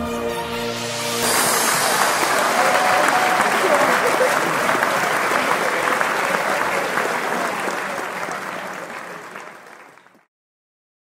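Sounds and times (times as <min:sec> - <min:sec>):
crowd applauding: 0:00.9 - 0:10.3.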